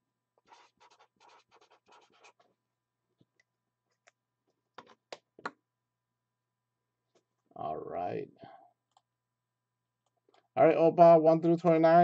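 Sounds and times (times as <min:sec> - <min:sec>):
pen scratching on paper: 0:00.5 - 0:02.4.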